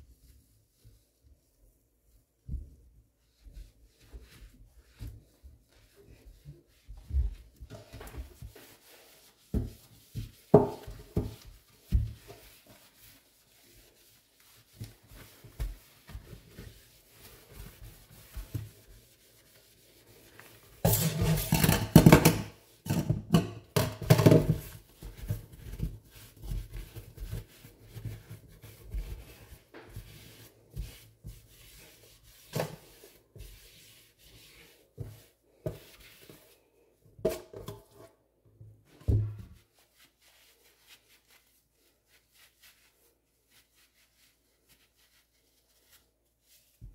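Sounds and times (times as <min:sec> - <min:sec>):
sponge scrubbing steel sink: 0:02.4 - 0:38.2, 0:38.8 - 0:46.9.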